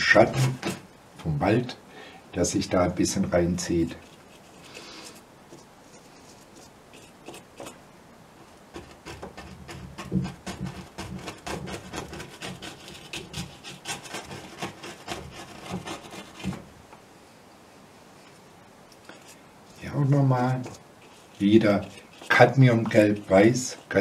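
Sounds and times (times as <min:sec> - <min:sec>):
paintbrush scrubbing on canvas: 0:03.6 - 0:07.8, 0:08.7 - 0:16.6, 0:19.0 - 0:24.0.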